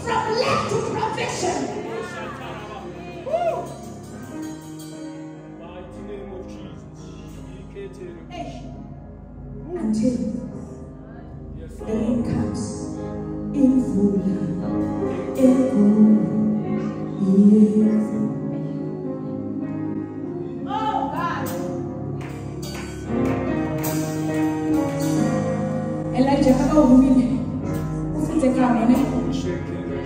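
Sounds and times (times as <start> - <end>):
sustained instrumental chords: 0.0 - 30.0
woman singing into a microphone: 11.9 - 18.8.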